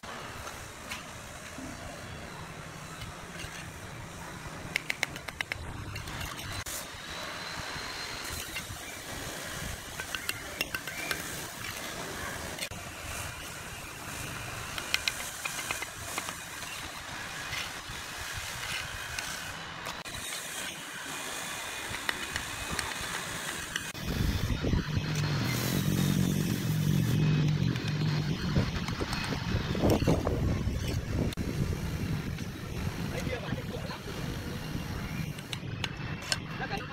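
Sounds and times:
trowel tapping and scraping bricks: 0:04.6 - 0:06.7, 0:10.0 - 0:11.8, 0:14.7 - 0:16.9
low engine drone: 0:23.7 - 0:36.7.

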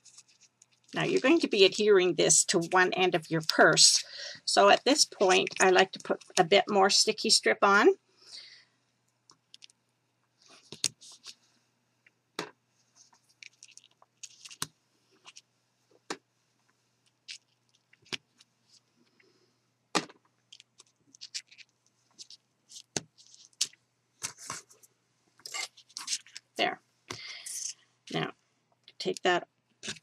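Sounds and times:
tape taps and rustles: 0:20.0 - 0:24.8.

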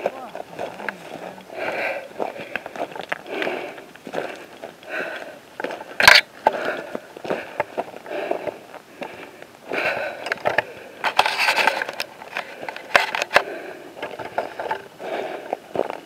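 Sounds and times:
footsteps crunching on dry grass: 0:00.0 - 0:09.8
branches rustling against clothing: 0:00.0 - 0:10.0.

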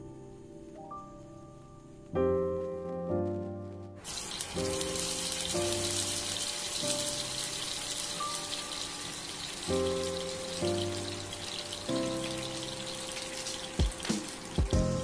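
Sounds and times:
background music: 0:00.0 - 0:15.0
sizzling in a frying pan: 0:04.0 - 0:15.0.

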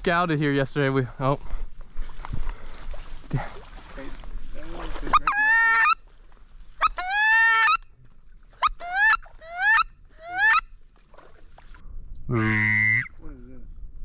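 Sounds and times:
duck quacking: 0:05.1 - 0:06.0, 0:12.3 - 0:13.1.

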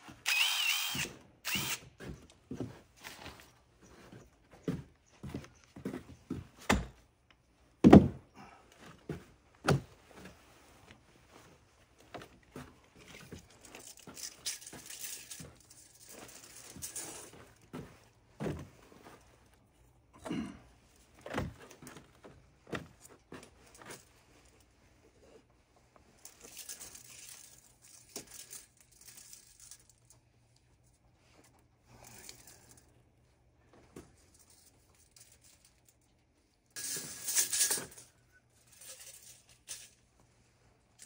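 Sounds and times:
hard objects knocking and thudding: 0:07.8 - 0:08.2.

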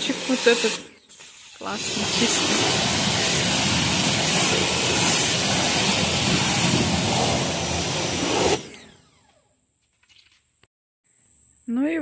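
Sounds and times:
pressure washer spraying: 0:00.0 - 0:08.8
motor winding down: 0:07.0 - 0:09.6.

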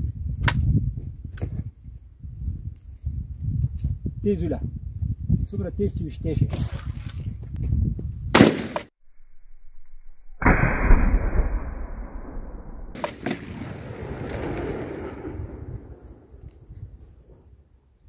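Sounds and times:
shotgun blast: 0:08.4 - 0:08.9, 0:10.4 - 0:16.3
echo rumbling off hillside: 0:10.4 - 0:17.7.

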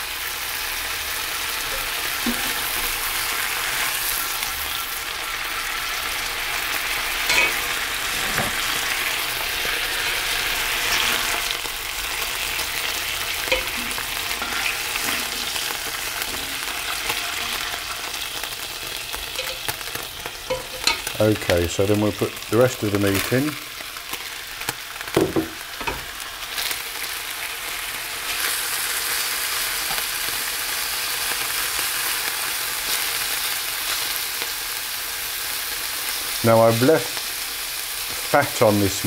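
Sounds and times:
meat sizzling in hot oil: 0:00.0 - 0:39.0
utensils clicking and scraping pan: 0:07.3 - 0:09.0, 0:13.3 - 0:17.7, 0:19.1 - 0:21.6.

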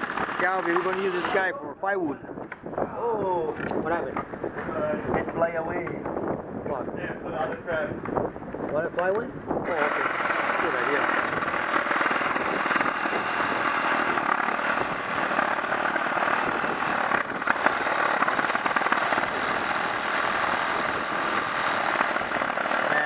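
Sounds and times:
reciprocating saw cutting log: 0:00.0 - 0:01.5, 0:09.6 - 0:23.0.

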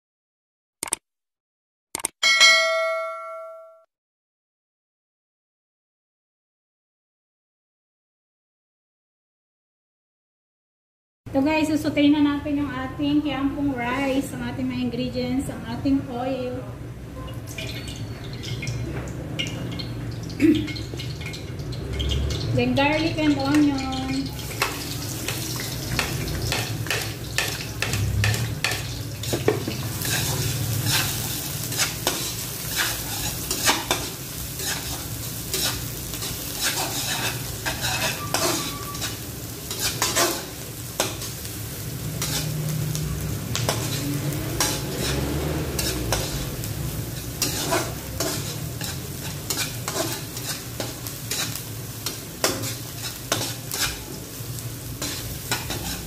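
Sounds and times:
garlic and onion sizzling in oil: 0:13.2 - 0:56.0
metal spatula scraping wok: 0:23.5 - 0:56.0.

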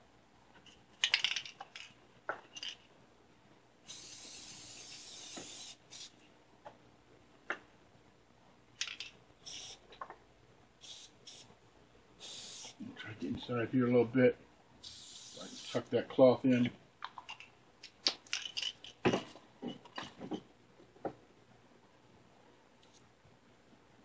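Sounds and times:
spray can hissing: 0:03.9 - 0:06.2, 0:09.4 - 0:09.8, 0:10.8 - 0:11.5, 0:12.2 - 0:12.8, 0:14.8 - 0:15.8.

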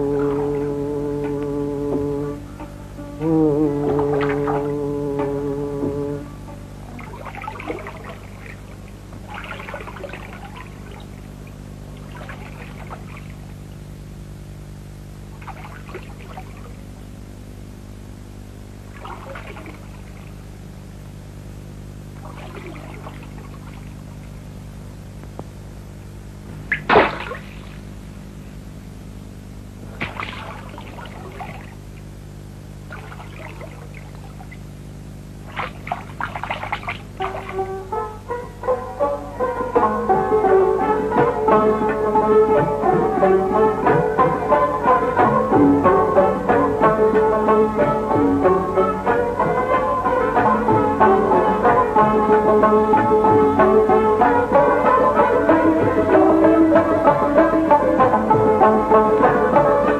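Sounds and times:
low electrical hum: 0:00.0 - 0:59.9
water splashing: 0:03.8 - 0:05.5, 0:06.8 - 0:13.6, 0:15.3 - 0:16.9, 0:18.9 - 0:20.4, 0:22.2 - 0:24.3, 0:26.6 - 0:28.0, 0:29.8 - 0:32.2, 0:32.8 - 0:34.8, 0:35.4 - 0:37.9.

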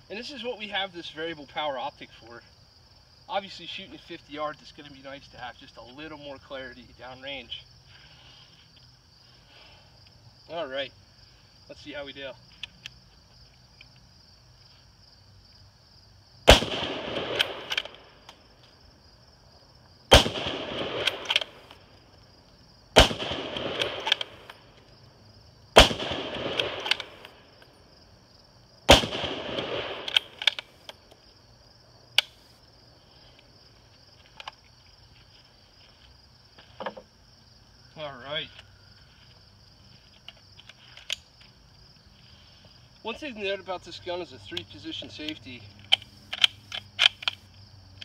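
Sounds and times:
crickets chirping: 0:00.0 - 0:48.0
rifle shots echoing: 0:16.4 - 0:18.1, 0:20.1 - 0:21.7, 0:22.9 - 0:24.5, 0:25.8 - 0:27.5, 0:28.8 - 0:30.7
rifle bolt clacking: 0:17.2 - 0:18.0, 0:20.9 - 0:21.6, 0:23.2 - 0:24.6, 0:26.3 - 0:27.3, 0:29.6 - 0:31.0, 0:45.8 - 0:47.4.

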